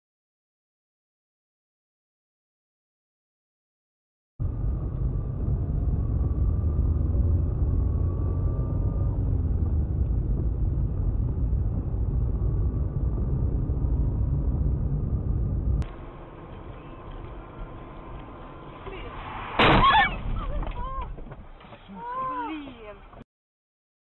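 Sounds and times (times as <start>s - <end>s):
car engine and road noise: 4.4s - 23.2s.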